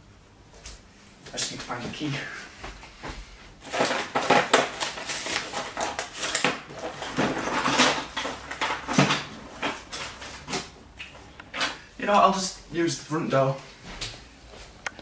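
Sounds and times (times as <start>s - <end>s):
household objects clattering: 3.6s - 10.8s.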